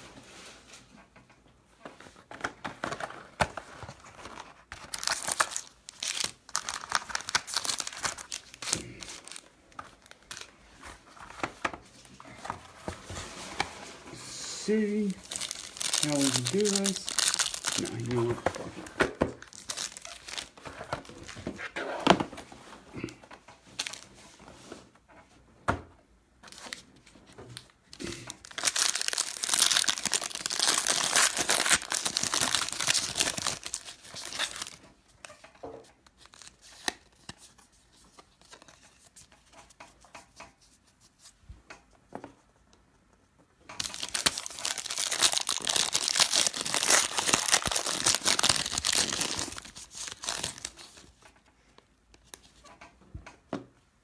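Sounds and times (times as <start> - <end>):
plastic wrapping crinkling: 3.0 - 12.5, 14.2 - 21.5, 23.8 - 24.2, 27.6 - 35.4, 43.7 - 51.3.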